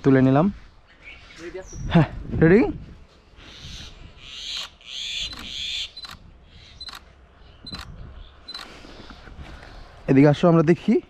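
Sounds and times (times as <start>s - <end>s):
camera shutter clicks: 4.5s - 6.2s.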